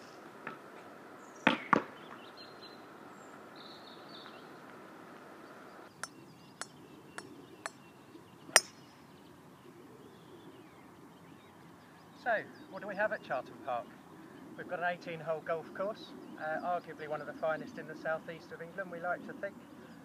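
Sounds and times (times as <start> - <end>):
outdoor background noise: 0.0 - 20.0
golf club striking ball: 8.5 - 8.9.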